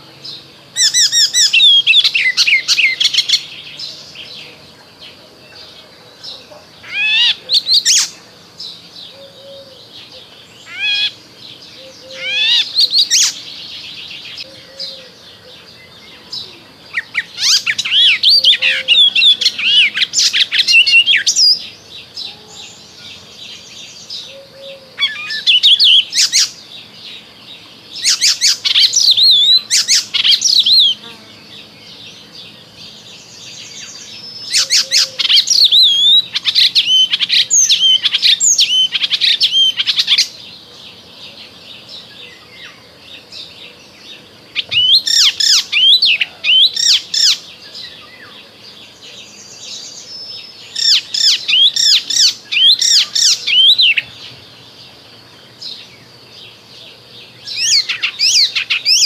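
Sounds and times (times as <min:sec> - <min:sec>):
bird chattering warble: 0:09.1 - 0:21.8, 0:33.8 - 0:40.4, 0:50.7 - 0:54.1.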